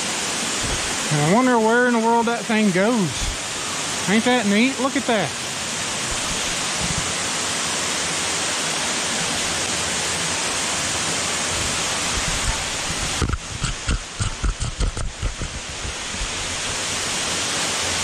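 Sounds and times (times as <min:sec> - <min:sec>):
waterfall rushing: 0:00.0 - 0:18.0
camera handling knocks: 0:13.2 - 0:15.6.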